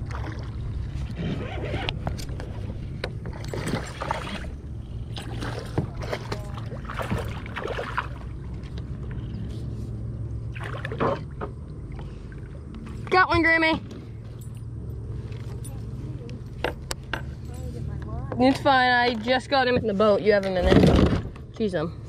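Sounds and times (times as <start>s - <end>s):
water splashing around kayak: 0.0s - 13.2s.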